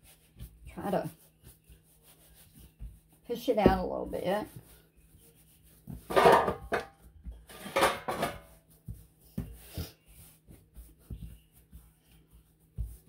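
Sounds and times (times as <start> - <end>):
kitchen clattering: 6.1 - 8.5.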